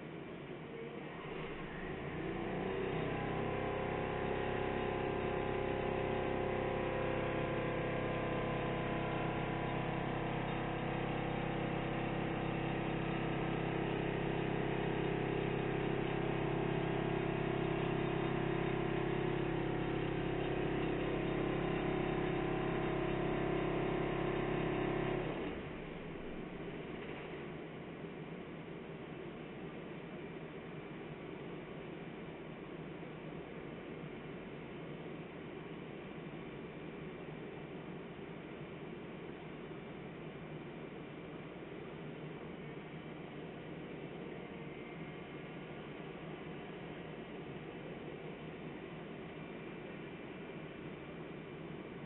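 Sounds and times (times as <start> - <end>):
diesel engine running under load: 1.3 - 27.0.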